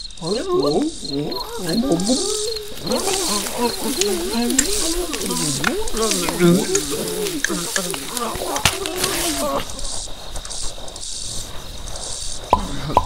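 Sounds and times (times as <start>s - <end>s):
cartoon creature voices warbling: 0.2s - 9.8s
light crackle: 0.8s - 13.0s.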